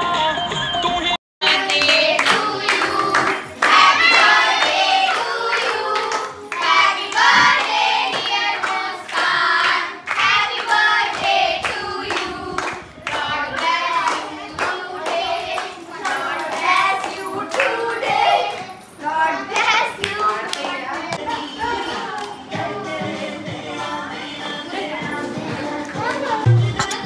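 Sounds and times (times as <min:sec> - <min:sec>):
hands clapping: 0:01.4 - 0:10.8, 0:11.6 - 0:17.8
group singing a birthday tune: 0:01.4 - 0:27.0.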